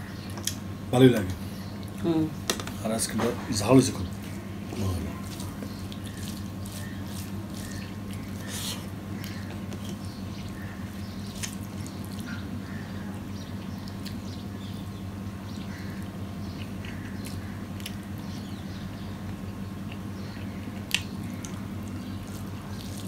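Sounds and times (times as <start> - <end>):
fingers mixing food on plate: 4.0 - 12.4
chewing: 4.2 - 14.3, 15.8 - 18.5, 19.2 - 23.0.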